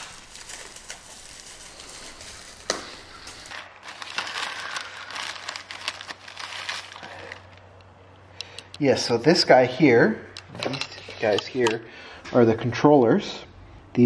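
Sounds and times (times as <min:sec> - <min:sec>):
plastic packaging crinkling: 0:00.0 - 0:07.8.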